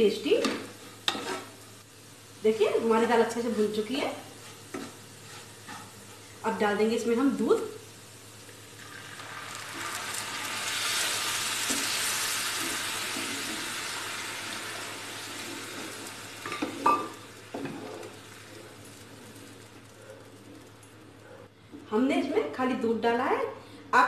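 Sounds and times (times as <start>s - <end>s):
milk sizzling in hot fat: 0.0s - 21.2s
wooden spatula stirring: 4.1s - 6.4s.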